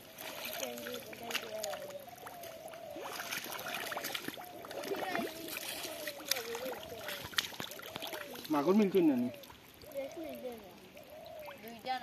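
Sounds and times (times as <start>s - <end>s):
hands squelching through mud: 0.0s - 9.5s
small water splashes: 0.0s - 12.0s.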